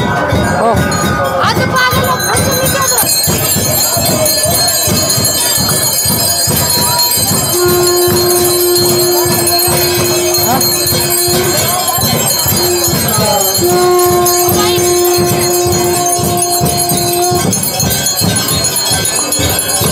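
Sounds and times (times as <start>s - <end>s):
steady drum beat: 0.0s - 19.9s
hand bells jingling: 0.6s - 19.9s
wind instrument held note: 6.7s - 18.2s.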